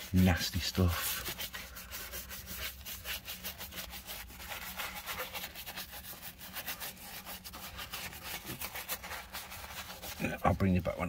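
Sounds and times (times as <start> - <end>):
brush scrubbing steel: 0.0 - 11.0.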